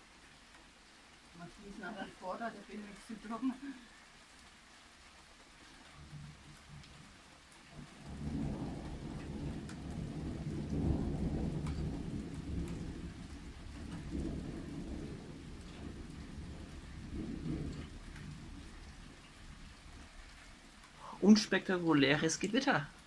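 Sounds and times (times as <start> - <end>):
light rain ticking: 0.0 - 23.0
thunder rumble: 5.9 - 21.2.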